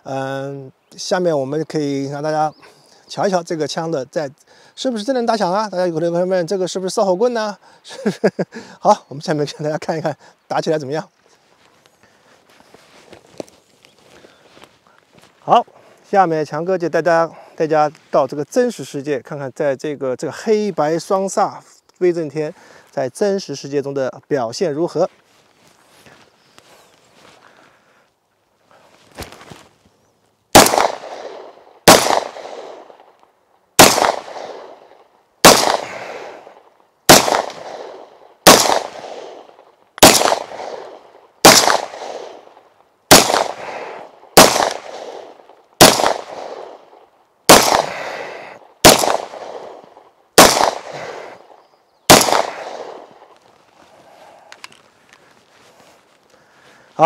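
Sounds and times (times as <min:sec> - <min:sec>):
pistol shots with echo: 0:30.5 - 0:33.0, 0:33.8 - 0:36.5, 0:37.1 - 0:46.8, 0:47.5 - 0:48.2, 0:48.8 - 0:51.4, 0:52.1 - 0:53.2.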